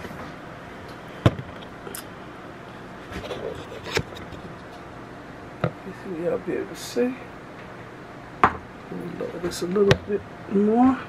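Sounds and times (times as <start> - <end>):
camera stand rubbing and scraping: 3.0 - 4.7.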